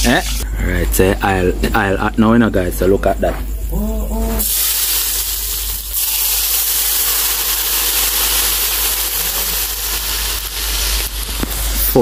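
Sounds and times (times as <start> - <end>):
oil sizzling in pan: 4.4 - 12.0.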